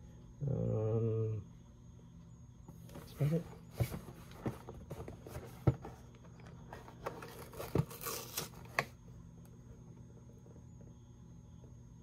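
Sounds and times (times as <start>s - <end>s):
cardboard tearing: 7.2s - 8.9s.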